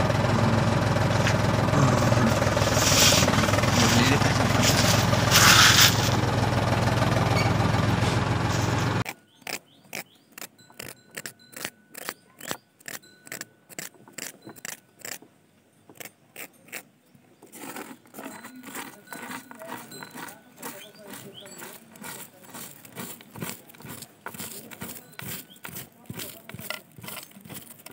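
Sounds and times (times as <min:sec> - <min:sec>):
small motor humming: 0:00.0 - 0:09.0
wet cement pouring: 0:01.0 - 0:09.0, 0:17.5 - 0:27.9
small tool scraping wet cement: 0:01.1 - 0:06.4, 0:08.5 - 0:15.2, 0:15.9 - 0:27.9.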